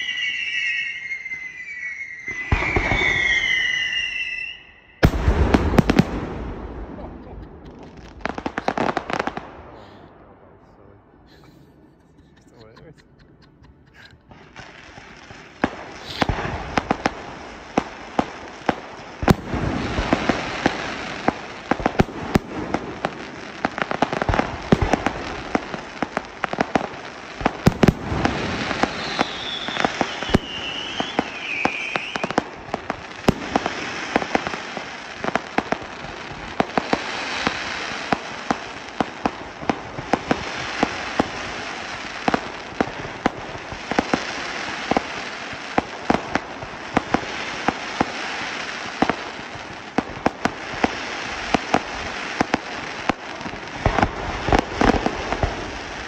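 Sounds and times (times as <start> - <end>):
descending firework whistles: 0.0 - 10.3, 14.0 - 45.8
fireworks firing sharp reports: 0.0 - 10.6, 14.0 - 56.0
fireworks crackling: 0.0 - 56.0.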